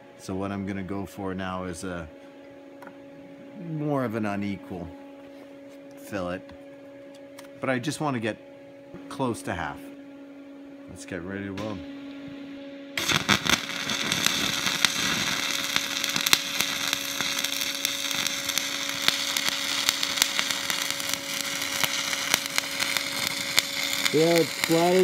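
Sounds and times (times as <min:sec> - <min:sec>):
spatter popping: 0:13.0 - 0:24.8
welding arc crackling: 0:13.0 - 0:25.0.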